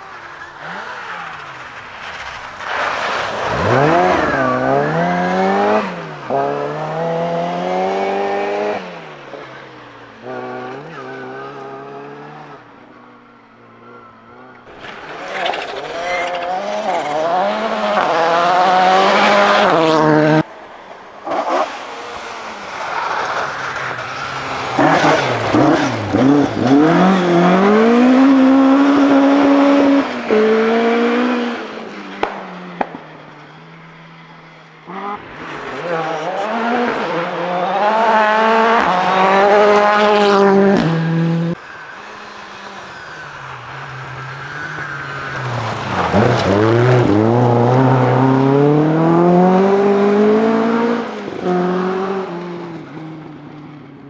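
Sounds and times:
rally car engines revving: 0.0s - 53.7s
rally cars passing at speed: 0.0s - 54.0s.

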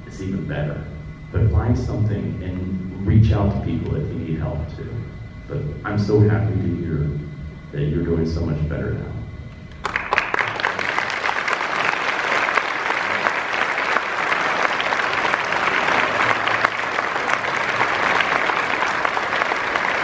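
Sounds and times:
audience applauding: 9.7s - 20.0s.

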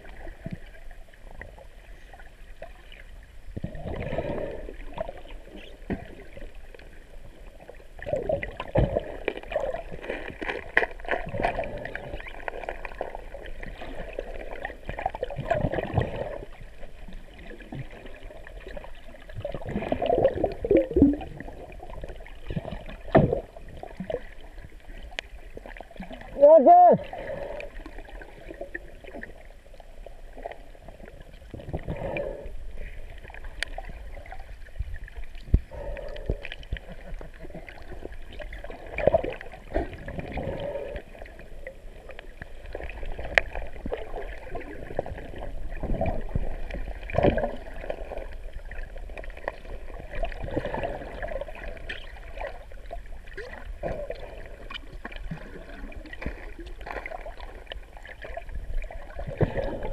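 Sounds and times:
muffled underwater swimming: 0.0s - 59.9s
sharp knocks underwater: 19.8s - 21.4s, 23.0s - 23.5s.

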